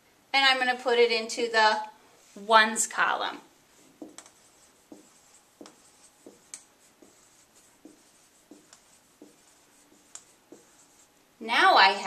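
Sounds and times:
marker tapping on whiteboard: 3.8 - 11.0.

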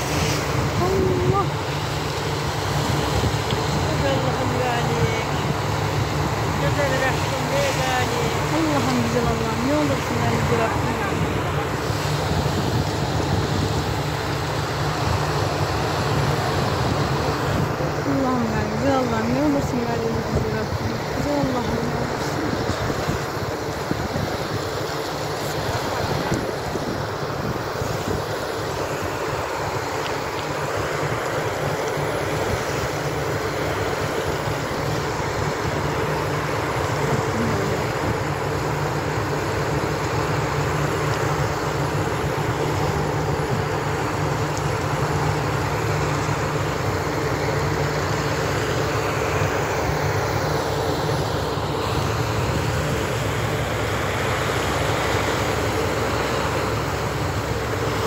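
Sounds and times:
engine hum: 0.0 - 58.0
water well gushing: 0.0 - 58.0.

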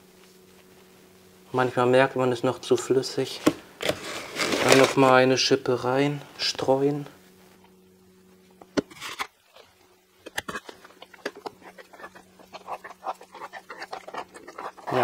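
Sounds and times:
spatula scraping plaster: 3.8 - 5.0, 10.5 - 15.0.

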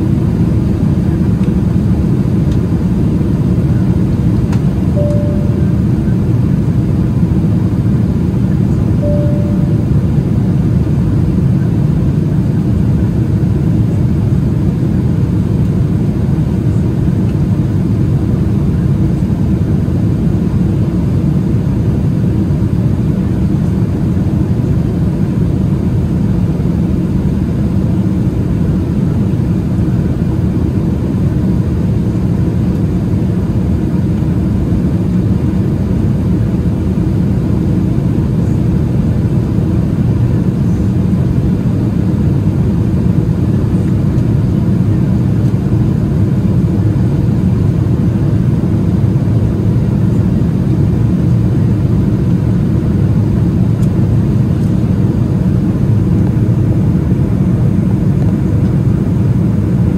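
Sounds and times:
jet engine hum: 0.0 - 59.9.

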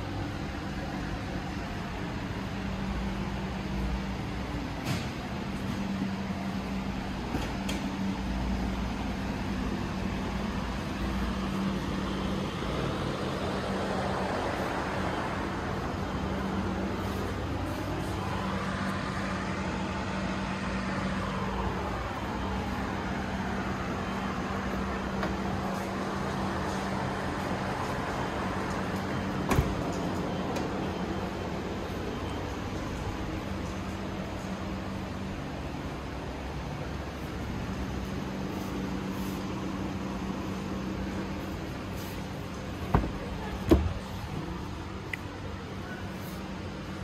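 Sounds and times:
steady mechanical hum: 0.0 - 47.0.

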